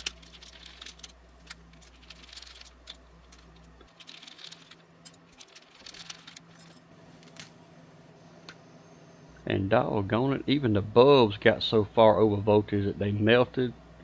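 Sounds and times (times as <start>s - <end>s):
small parts rattling: 0.0s - 7.6s.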